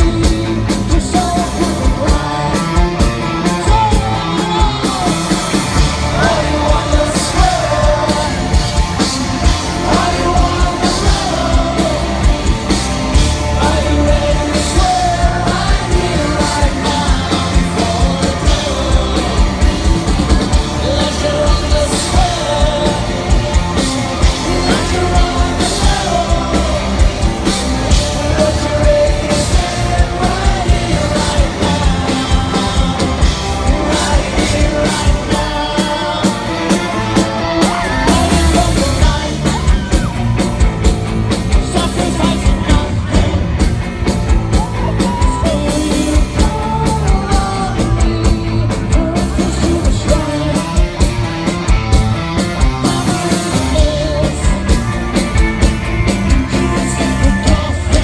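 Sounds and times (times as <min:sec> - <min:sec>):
bass guitar: 0:00.0 - 0:58.0
drums: 0:00.0 - 0:58.0
electric guitars: 0:00.0 - 0:58.0
lead vocal singing: 0:00.0 - 0:58.0.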